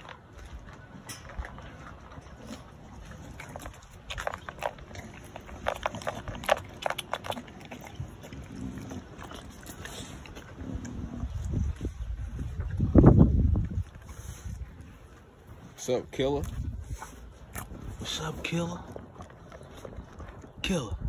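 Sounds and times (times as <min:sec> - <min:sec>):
dog crunching dry food: 0:00.0 - 0:11.0.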